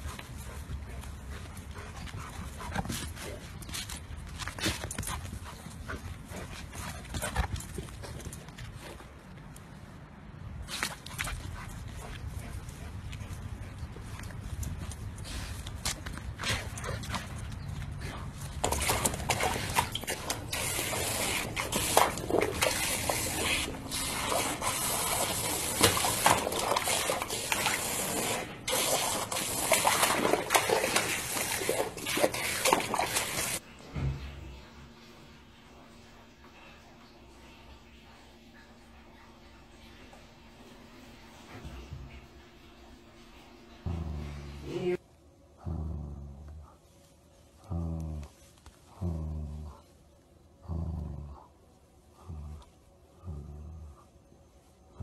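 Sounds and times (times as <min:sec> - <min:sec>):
hose nozzle spraying water: 0:18.6 - 0:33.6.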